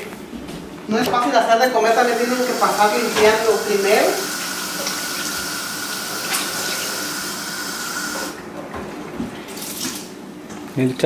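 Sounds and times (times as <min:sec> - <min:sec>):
faucet running into sink: 0:01.8 - 0:08.4
water splashing on dishes: 0:02.0 - 0:08.4.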